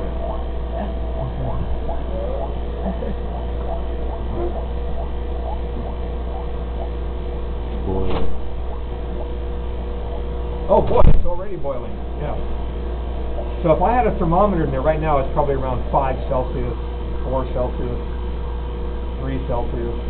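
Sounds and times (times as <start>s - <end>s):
vacuum pump humming: 0.0s - 20.0s.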